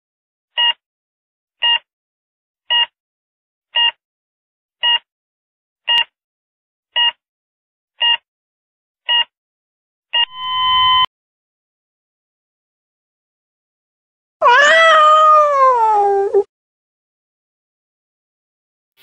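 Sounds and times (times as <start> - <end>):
short electronic beeps: 10.2 - 11.1.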